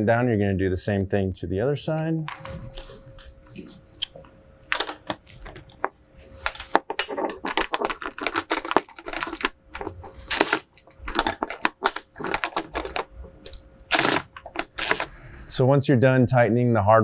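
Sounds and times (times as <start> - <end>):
drill metallic clicks: 8.2 - 15.1.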